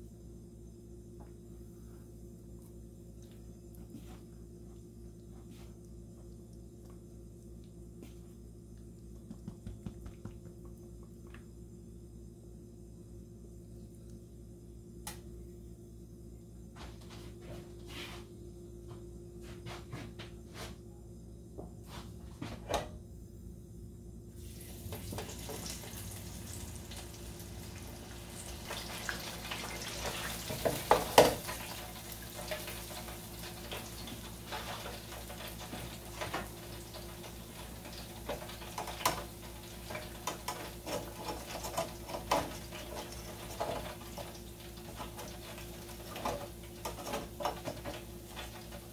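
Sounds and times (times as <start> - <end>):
hot oil sizzling in fryer: 24.3 - 48.9.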